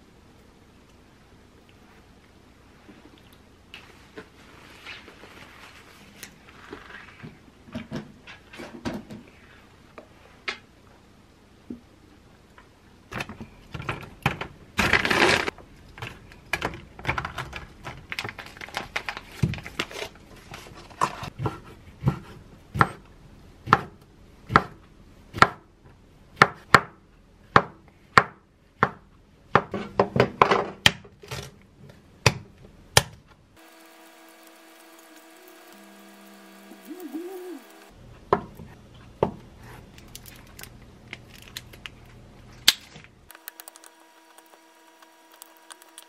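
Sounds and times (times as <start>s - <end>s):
knife chopping on wooden board: 23.6s - 24.8s.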